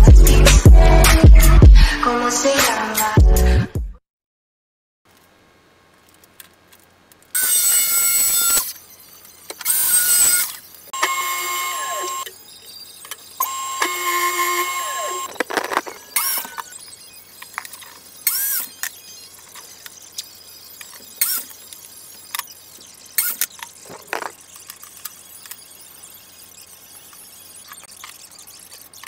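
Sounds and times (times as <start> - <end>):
table saw whine: 7.4 - 29.0.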